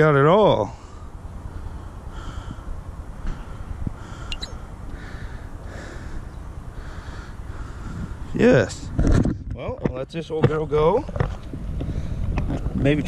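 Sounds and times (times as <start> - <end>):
high chirp: 4.3 - 4.6
wind rumble on microphone: 7.5 - 13.0.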